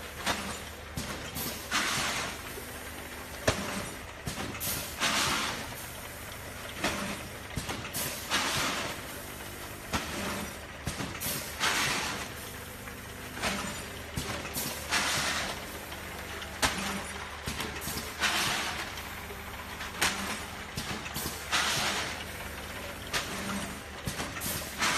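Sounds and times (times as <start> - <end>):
packing machine hiss: 1.3 - 4.0, 4.6 - 6.0, 7.9 - 10.6, 11.2 - 12.5, 13.4 - 16.0, 23.1 - 24.9.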